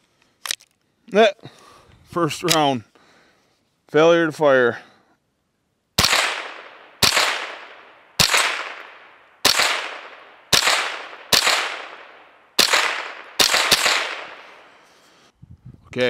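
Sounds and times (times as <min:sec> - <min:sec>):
rifle shots echoing: 0:06.0 - 0:14.8
rifle action cycling: 0:12.6 - 0:14.4.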